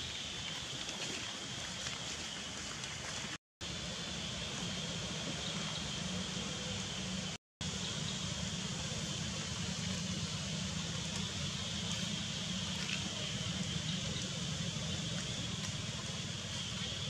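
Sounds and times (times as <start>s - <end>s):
low hum: 3.6s - 17.0s.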